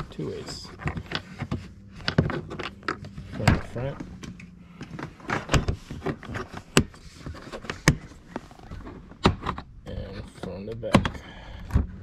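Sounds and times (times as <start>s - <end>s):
plastic hatch lid clicks and knocks: 10.7s - 12.0s.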